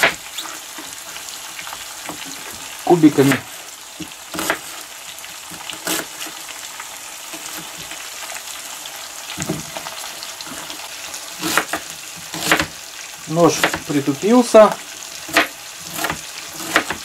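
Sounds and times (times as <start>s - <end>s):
food sizzling in oil: 0.0s - 17.0s
knife slicing on cutting board: 11.4s - 12.7s.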